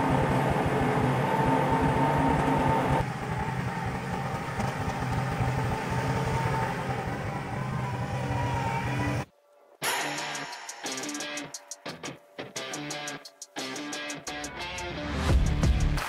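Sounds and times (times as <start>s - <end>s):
tractor diesel engine running: 0.0s - 9.3s.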